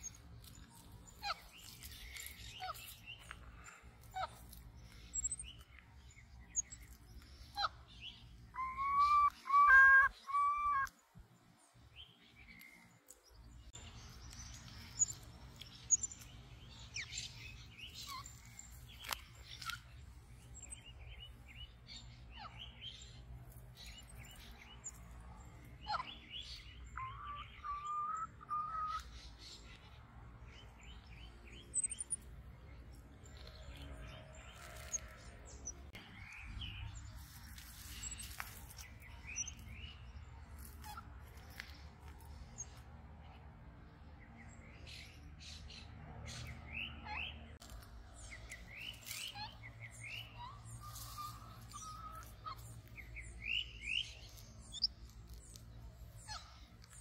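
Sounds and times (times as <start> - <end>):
high chirping and whistling calls: 4.2 - 5.7, 6.5 - 10.9, 25.8 - 29.7, 31.5 - 32.2, 48.2 - 55.6.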